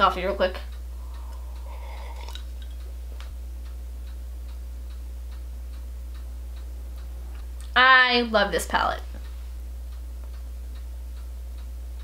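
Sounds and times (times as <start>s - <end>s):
faint regular ticking: 0.0s - 12.0s
low electrical hum: 0.0s - 12.0s
person sipping coffee: 1.0s - 2.8s.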